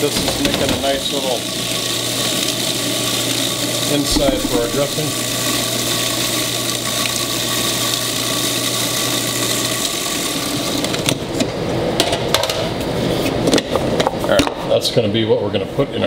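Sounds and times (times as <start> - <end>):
food processor motor chopping: 1.5 - 11.2.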